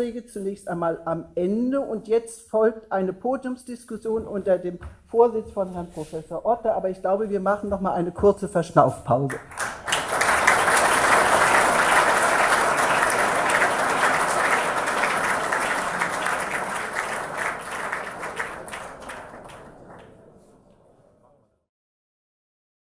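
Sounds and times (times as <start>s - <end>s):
audience applauding: 9.3s - 20.8s.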